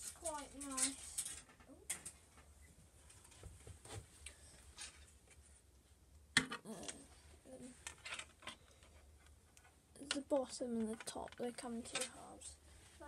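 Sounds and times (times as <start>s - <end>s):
plastic sprues clicking and rattling: 0.0s - 2.2s, 7.8s - 12.3s.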